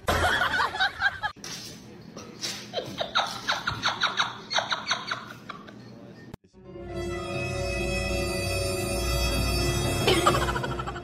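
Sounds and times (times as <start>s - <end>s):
person laughing in high bursts: 10.0s - 11.0s.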